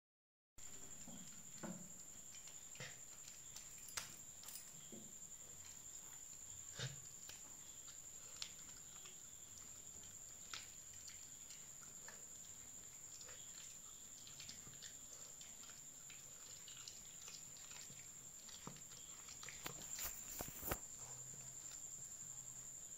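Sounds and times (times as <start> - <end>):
dog chewing with crunches: 0.6 - 22.3.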